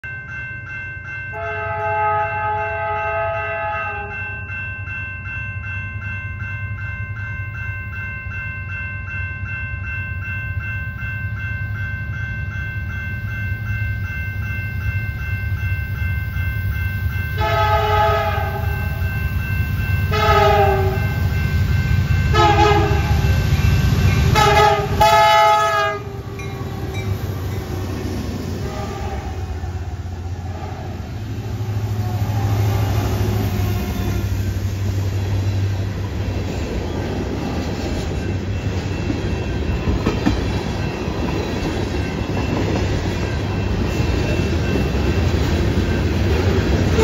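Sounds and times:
crossing bell ringing: 0.0s - 47.0s
train air horn blasts: 1.4s - 4.2s, 17.4s - 19.0s, 20.1s - 21.2s, 22.3s - 23.2s, 24.3s - 28.0s, 28.6s - 29.6s, 30.4s - 31.1s, 32.1s - 34.5s
diesel train rumble: 10.2s - 47.0s.

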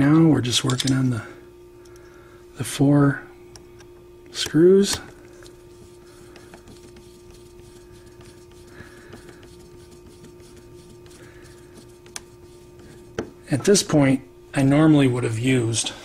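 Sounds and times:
steady electrical hum: 0.0s - 16.0s.

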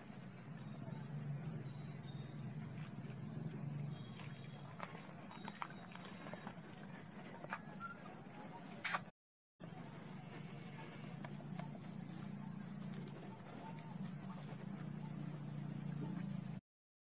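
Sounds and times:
high insect drone: 0.0s - 16.6s
faint short chirps: 7.5s - 8.1s.

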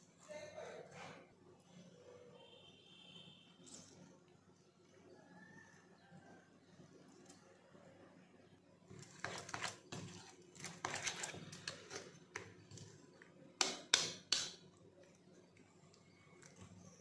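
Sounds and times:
spoon stirring wet mixture: 3.5s - 17.0s.

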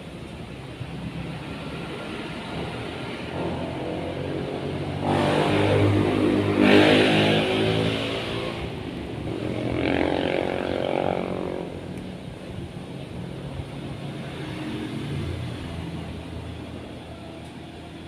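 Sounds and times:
motor engine passing: 3.4s - 11.9s.

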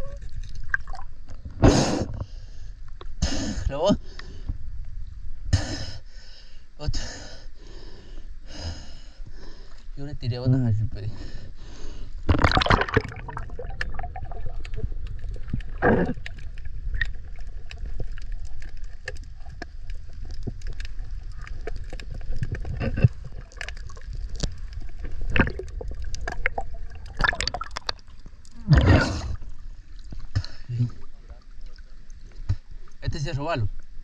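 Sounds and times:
small underwater clicks: 0.0s - 1.5s, 12.4s - 28.6s
water sloshing and gurgling: 0.0s - 3.2s, 11.3s - 34.0s
muffled underwater rumble: 12.2s - 34.0s
splashing and bubbling bursts: 12.3s - 32.7s.

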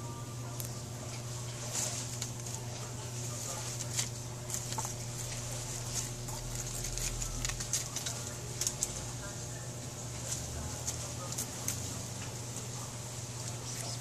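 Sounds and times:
steady low hum: 0.0s - 14.0s
leaves rustling: 1.0s - 14.0s
kitten claws scratching bark: 1.9s - 9.2s, 10.2s - 12.7s.

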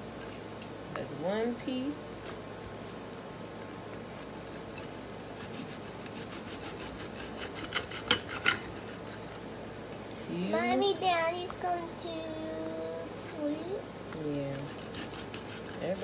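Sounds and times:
knife sawing through crisp food: 4.2s - 9.4s, 14.4s - 16.0s.

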